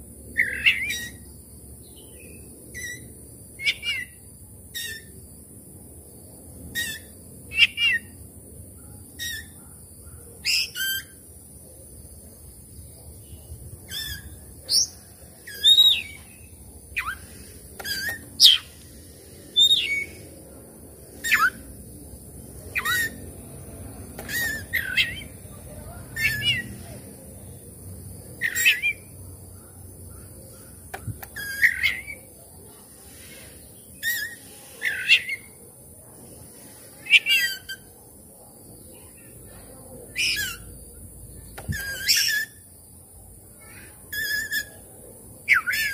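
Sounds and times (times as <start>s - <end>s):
steady high hiss: 11.2s - 26.0s
bird singing whistled phrases: 13.9s - 16.3s, 19.6s - 20.2s, 21.2s - 21.6s, 28.4s - 29.1s, 45.5s - 45.9s.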